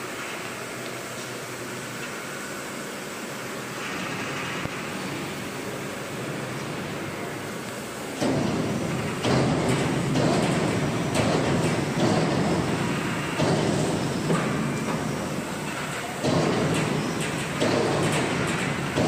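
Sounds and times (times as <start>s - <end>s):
overhead crane mechanical rumble: 2.7s - 19.0s
knocks: 8.2s - 15.1s, 16.2s - 19.0s.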